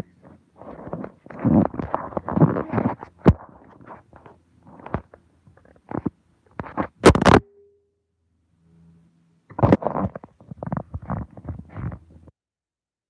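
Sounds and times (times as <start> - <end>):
phone microphone rubbing on fabric: 0.0 - 7.0, 9.5 - 12.3.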